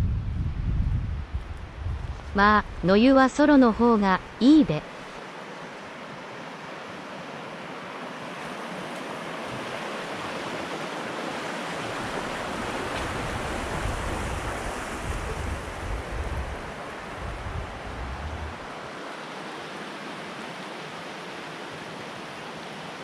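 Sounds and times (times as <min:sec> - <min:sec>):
wind buffeting microphone: 0:00.0 - 0:04.4, 0:11.8 - 0:19.0
river rushing over stones: 0:04.9 - 0:23.0.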